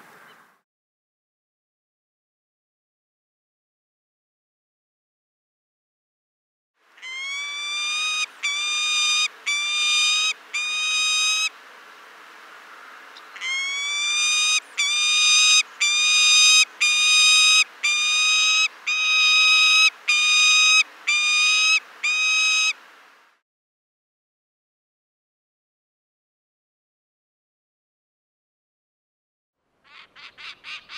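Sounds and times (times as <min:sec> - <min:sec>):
falcon wailing calls: 0:07.0 - 0:11.5, 0:13.4 - 0:22.8.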